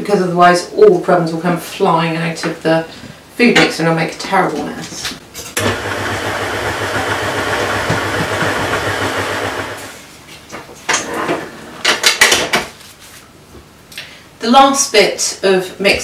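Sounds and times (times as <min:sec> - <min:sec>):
stand mixer motor running: 0:05.6 - 0:10.0.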